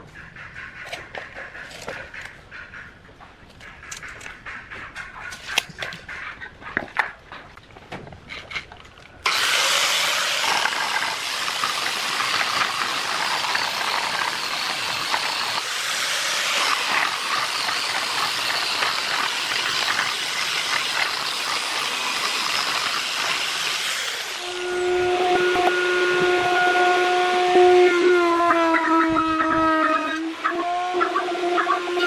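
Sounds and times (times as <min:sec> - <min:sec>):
angle grinder sanding wood: 0:09.3 - 0:28.7.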